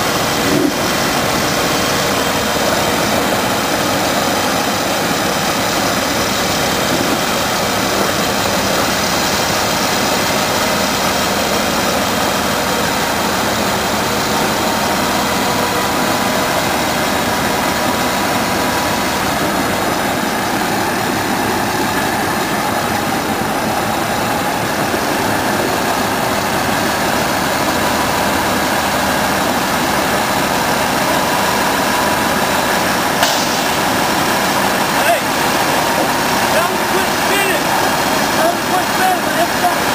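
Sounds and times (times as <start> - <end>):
diesel truck engine running: 0.0 - 39.9.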